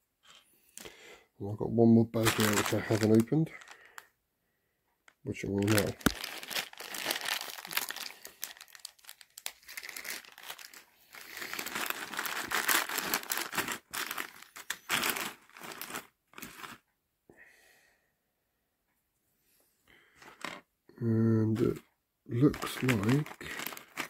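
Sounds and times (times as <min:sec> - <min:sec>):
plastic bag crinkling: 0:02.1 - 0:04.1, 0:05.3 - 0:16.8, 0:22.4 - 0:24.0.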